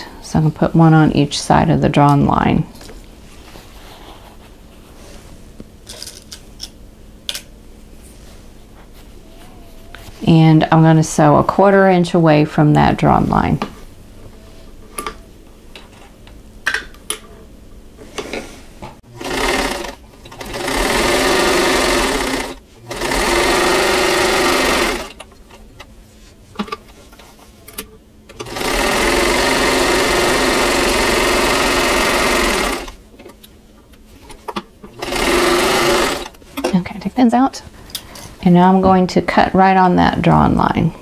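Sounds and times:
sewing machine stitching: 19.2 - 25.2, 28.4 - 33.0, 35.0 - 36.4.

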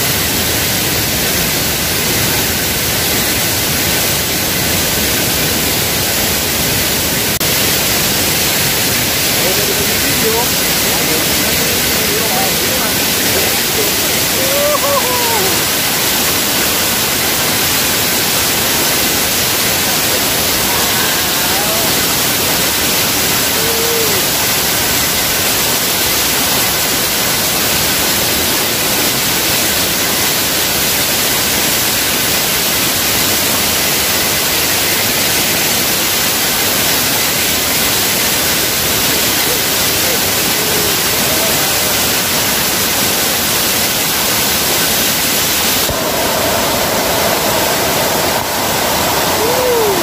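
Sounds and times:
waterfall rushing: 0.0 - 50.0
spray splashing: 0.3 - 50.0.

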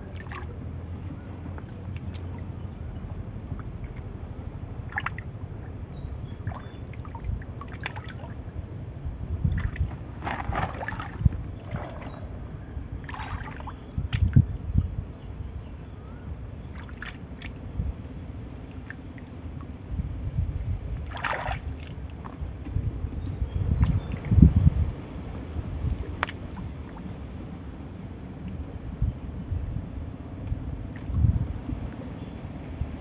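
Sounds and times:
water sloshing and squelching mud: 0.0 - 14.6, 16.6 - 17.8, 18.6 - 19.8, 20.8 - 28.8, 30.6 - 32.3
low steady rumble: 0.0 - 33.0.

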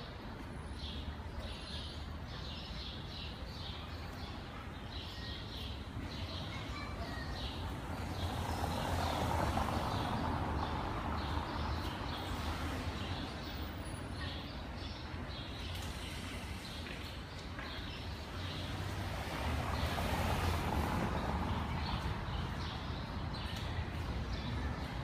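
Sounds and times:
passing vehicle noise: 7.5 - 14.1, 18.1 - 25.0.

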